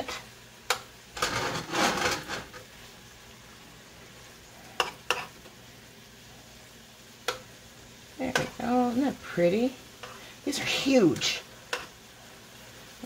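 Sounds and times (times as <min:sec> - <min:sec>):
tongs scraping in skillet: 0:00.0 - 0:03.0, 0:03.9 - 0:13.0
shrimp sizzling: 0:00.0 - 0:13.0
tongs clicking on pan: 0:00.6 - 0:00.9, 0:04.8 - 0:05.4, 0:07.2 - 0:07.5, 0:08.3 - 0:08.7, 0:11.0 - 0:12.0.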